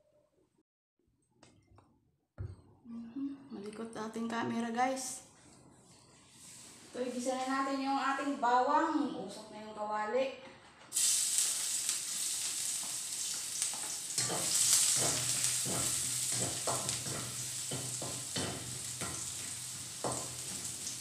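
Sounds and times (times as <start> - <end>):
garlic sizzling in oil: 10.9 - 21.0
spatula scraping a wok: 13.7 - 21.0.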